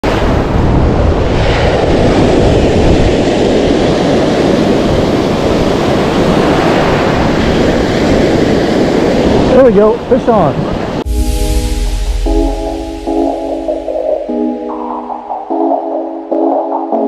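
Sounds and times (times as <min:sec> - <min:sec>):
wind rumbling on microphone: 0:00.0 - 0:13.0
ocean surf breaking: 0:00.0 - 0:17.0.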